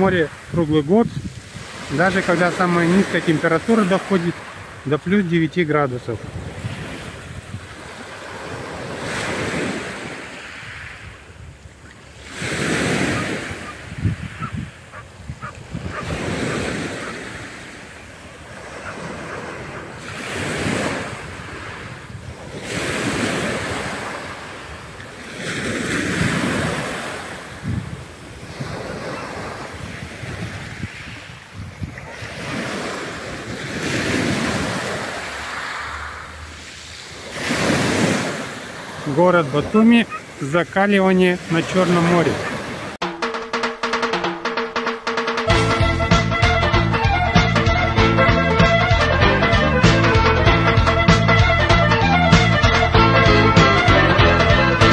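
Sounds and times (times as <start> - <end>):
waves washing onto shore: 0.0 - 43.2.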